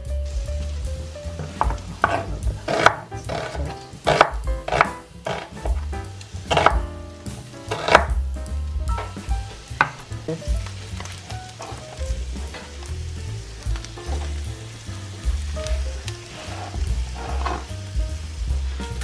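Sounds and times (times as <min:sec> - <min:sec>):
background music with bass: 0:00.0 - 0:19.0
meat sizzling in a frying pan: 0:00.0 - 0:19.0
knife slicing on cutting board: 0:01.4 - 0:05.9, 0:06.5 - 0:06.8, 0:07.7 - 0:08.1
wooden spoon stirring: 0:01.4 - 0:06.8, 0:08.9 - 0:12.9, 0:13.8 - 0:17.7.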